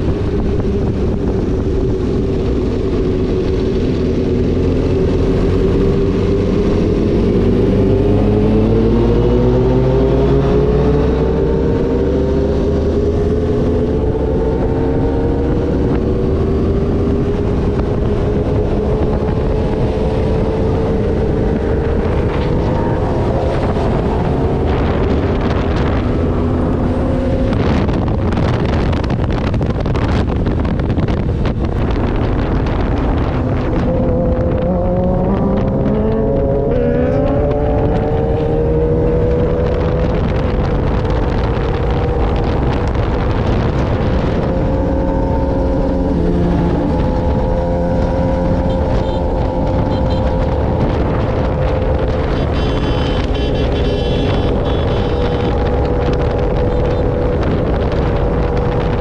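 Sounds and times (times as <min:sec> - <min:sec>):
wind rumble on microphone: 0:00.0 - 0:59.0
motorcycle engine running: 0:15.8 - 0:59.0.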